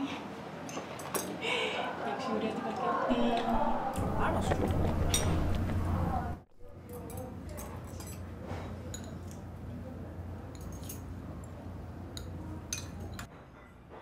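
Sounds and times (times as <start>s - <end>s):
low room hum: 3.1s - 14.0s
dishes and cutlery clinking: 4.5s - 5.8s, 6.8s - 9.5s, 10.5s - 14.0s.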